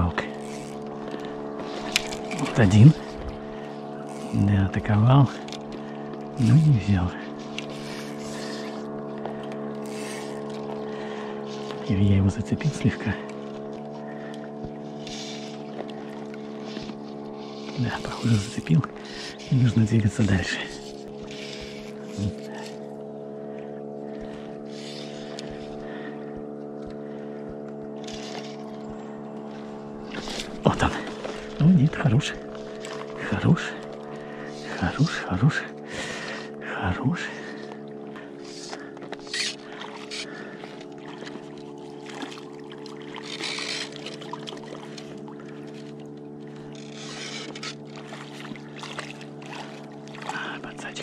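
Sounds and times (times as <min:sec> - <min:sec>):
outboard motor running: 0:00.0 - 0:51.0
water rushing along boat: 0:00.0 - 0:51.0.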